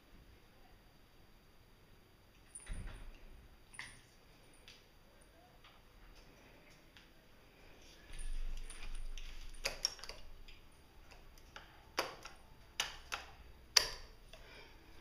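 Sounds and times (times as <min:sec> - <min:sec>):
sharp irregular taps and clicks: 0:09.6 - 0:14.4.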